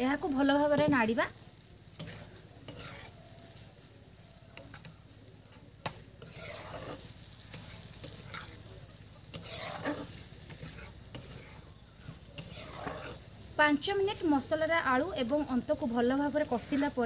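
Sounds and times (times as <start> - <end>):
food sizzling in oil: 0.0 - 17.0
spoon scraping a wok: 0.0 - 17.0.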